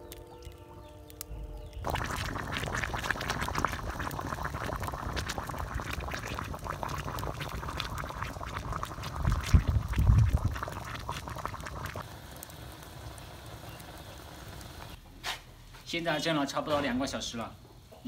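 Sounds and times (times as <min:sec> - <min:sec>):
water boiling and bubbling: 0:01.6 - 0:15.0.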